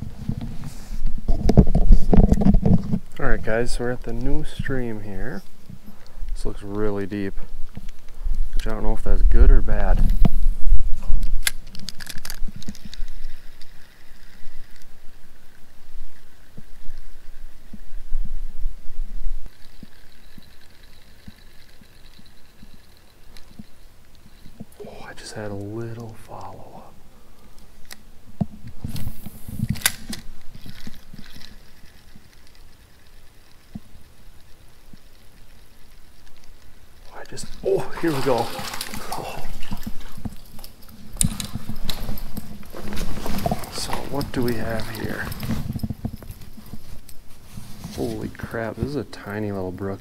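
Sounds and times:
fishing reel clicks: 11.2 - 17.6, 19.5 - 24.8, 29.0 - 39.0
fishing reel whirring: 11.4 - 18.0, 19.4 - 24.9, 28.9 - 42.2
reel bail clicking shut: 28.8 - 34.5.

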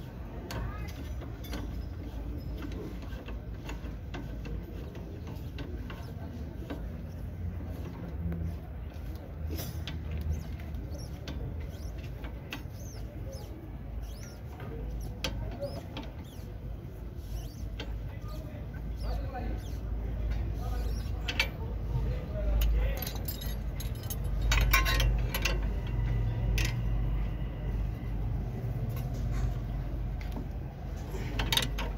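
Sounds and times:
birds chirping: 10.0 - 21.7.

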